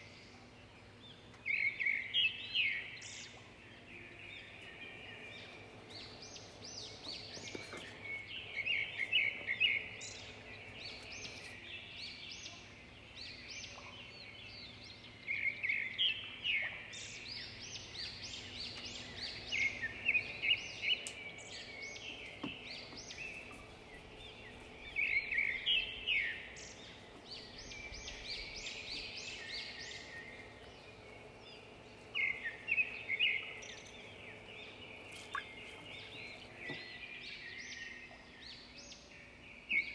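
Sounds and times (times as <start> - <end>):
faint steady hum: 0.0 - 39.9
small birds chirping: 0.0 - 39.9.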